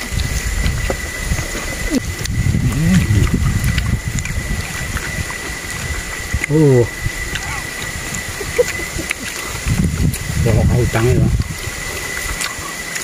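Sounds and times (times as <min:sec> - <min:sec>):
high-pitched whine: 0:00.0 - 0:13.0.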